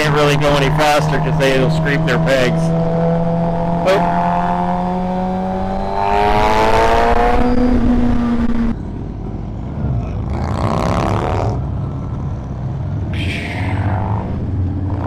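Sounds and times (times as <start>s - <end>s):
wind gusting over microphone: 4.4s - 8.8s.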